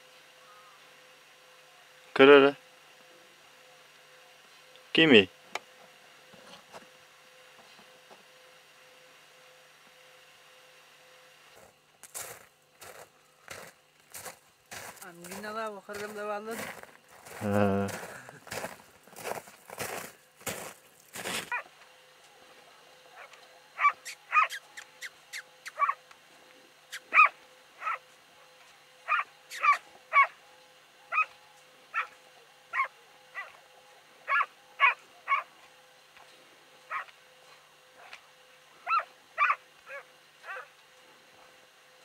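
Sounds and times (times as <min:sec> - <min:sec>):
dog barking: 0:23.2 - 0:24.6, 0:25.8 - 0:26.0, 0:27.1 - 0:28.0, 0:29.1 - 0:30.3, 0:31.1 - 0:31.3, 0:32.0 - 0:33.6, 0:34.3 - 0:35.5, 0:36.9 - 0:37.1, 0:38.9 - 0:40.7.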